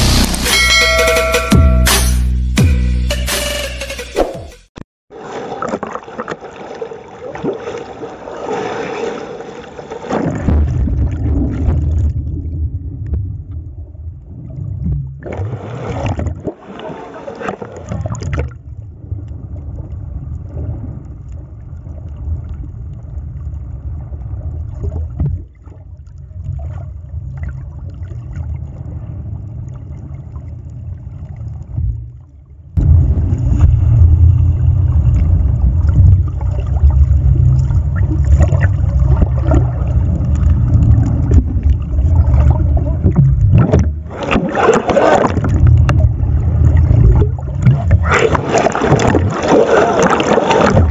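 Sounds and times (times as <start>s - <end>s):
churning turbulent water: 5.1s - 50.9s
muffled underwater rumble: 10.2s - 50.9s.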